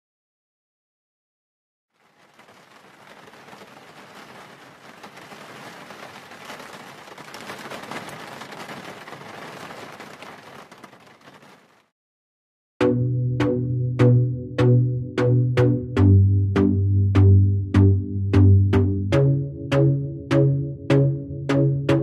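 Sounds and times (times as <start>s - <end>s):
rain falling: 1.9s - 11.9s.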